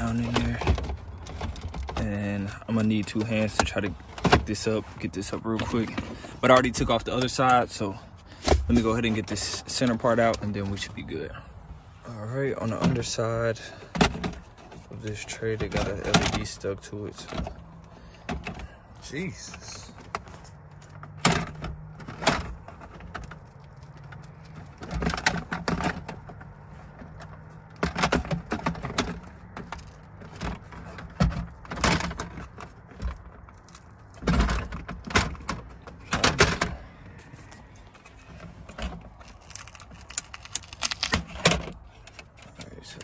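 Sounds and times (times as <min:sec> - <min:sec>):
clicks and rattles of plastic trim: 0:38.7 - 0:43.0.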